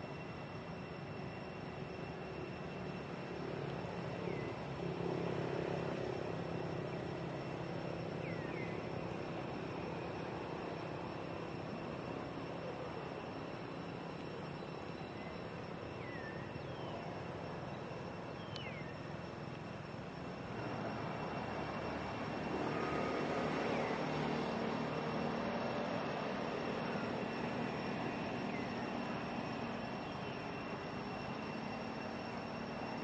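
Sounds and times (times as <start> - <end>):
steady outdoor drone: 0.0 - 33.0
bird chirps: 4.2 - 4.6, 8.2 - 8.9, 14.5 - 19.2.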